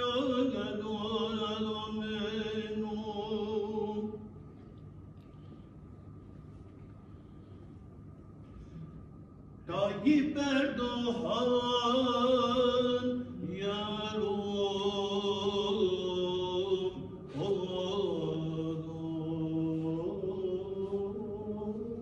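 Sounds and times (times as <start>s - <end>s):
man chanting a prayer: 0.0s - 4.2s, 9.6s - 22.0s.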